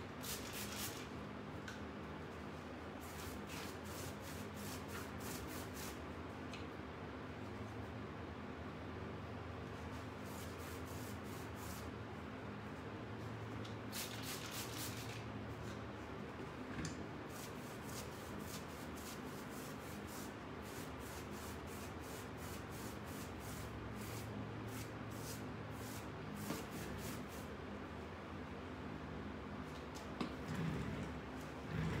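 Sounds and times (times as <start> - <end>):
paintbrush scrubbing and dabbing: 17.3 - 27.5.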